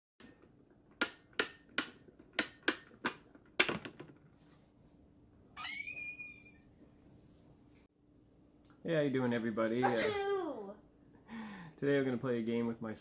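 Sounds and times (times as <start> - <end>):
short high-pitched squeal: 5.6 - 6.7.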